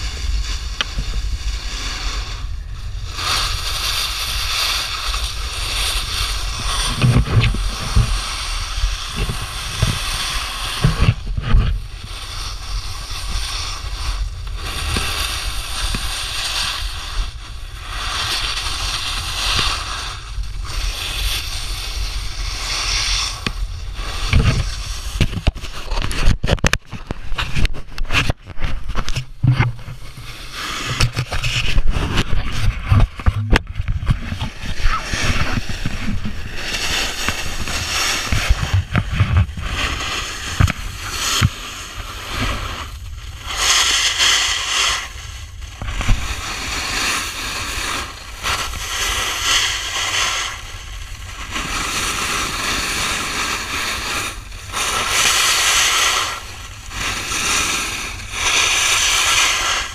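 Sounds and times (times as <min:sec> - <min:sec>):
snowboard scraping over snow: 0:00.0 - 0:59.9
wind rumbling on microphone: 0:00.0 - 0:59.9
knocks and thumps: 0:06.9 - 0:08.2, 0:25.2 - 0:30.2, 0:30.8 - 0:36.4.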